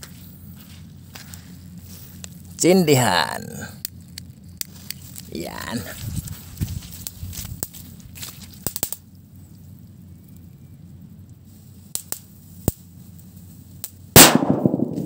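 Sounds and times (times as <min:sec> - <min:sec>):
firecracker bang: 0:14.2 - 0:15.0.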